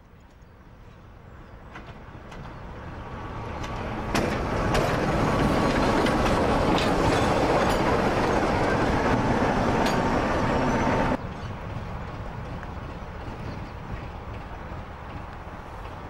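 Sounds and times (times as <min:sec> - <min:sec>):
diesel locomotive passing: 0:00.8 - 0:16.0
wheels clicking over rail joints: 0:01.6 - 0:09.2, 0:09.8 - 0:10.2.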